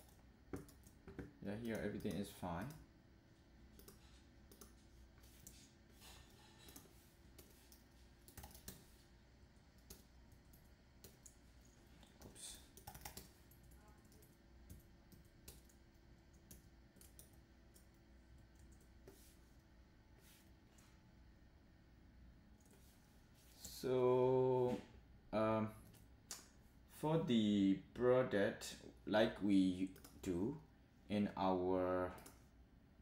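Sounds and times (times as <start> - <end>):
keyboard and mouse clicks: 0.0 - 2.8, 3.7 - 5.6, 6.6 - 8.8, 9.8 - 11.4, 12.0 - 19.2.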